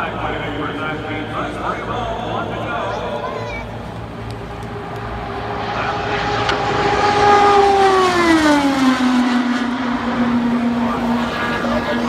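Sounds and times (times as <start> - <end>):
race car passing at speed: 0.0 - 12.0.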